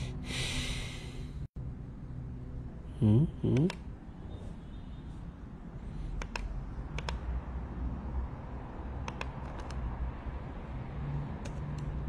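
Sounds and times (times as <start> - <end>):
computer keyboard clicking: 6.2 - 7.2, 9.0 - 9.8, 11.4 - 12.0.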